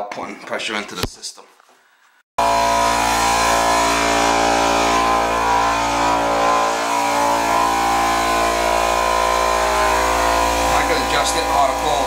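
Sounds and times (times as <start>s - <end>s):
air compressor running: 2.4s - 12.0s.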